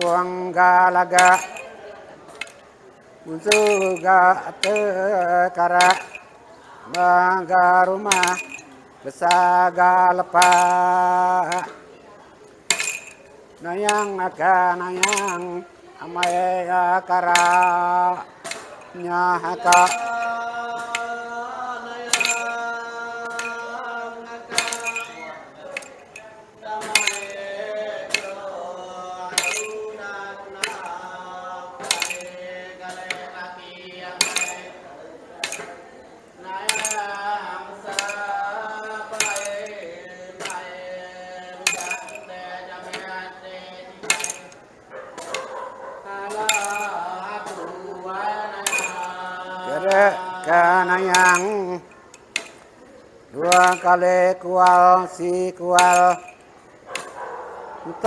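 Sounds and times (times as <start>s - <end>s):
man chanting: 0.0s - 2.0s, 3.2s - 11.8s, 13.6s - 44.6s, 45.7s - 51.9s, 53.3s - 56.3s, 57.7s - 58.0s
staffs striking floor with jingle: 1.0s - 2.6s, 3.3s - 6.4s, 7.9s - 11.8s, 12.7s - 21.3s, 21.9s - 33.5s, 34.2s - 35.9s, 36.5s - 43.4s, 44.0s - 47.9s, 48.5s - 52.8s, 53.4s - 58.0s
man chanting in wavering voice: 53.4s - 56.3s.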